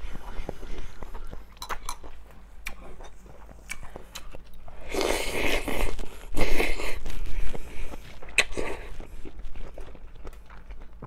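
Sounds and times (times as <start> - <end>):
person slurping noodles: 4.8 - 9.2.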